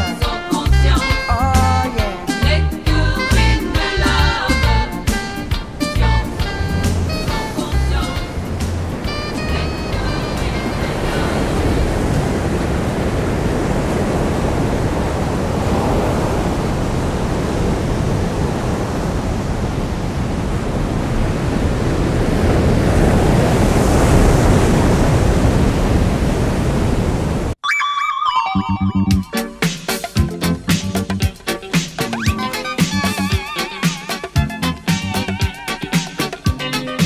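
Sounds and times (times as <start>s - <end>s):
ocean surf breaking: 0.0s - 27.6s, 29.2s - 37.0s
wind buffeting microphone: 5.2s - 27.6s.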